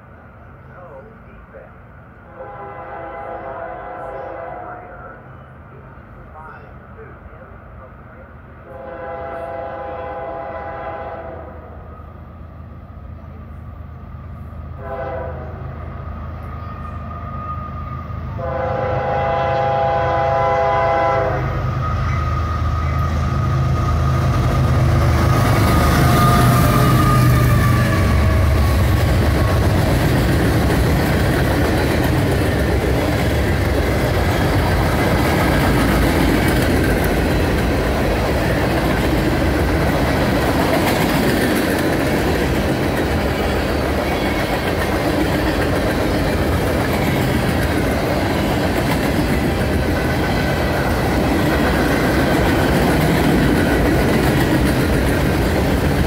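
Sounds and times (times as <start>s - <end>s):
diesel locomotive engines passing: 0.0s - 56.0s
train horn blast: 2.3s - 5.2s, 8.7s - 11.8s, 14.8s - 15.8s, 16.6s - 23.1s, 25.3s - 28.6s
freight cars wheels on rails: 22.0s - 56.0s.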